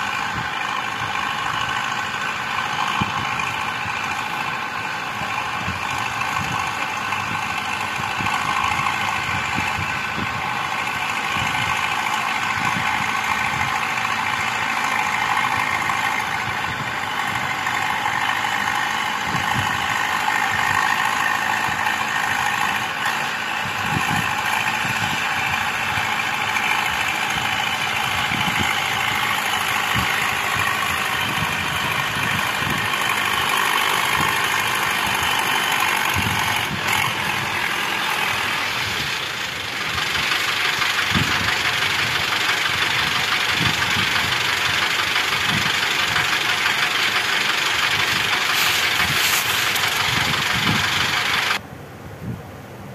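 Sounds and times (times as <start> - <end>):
tractor diesel engine running: 0.0 - 51.8.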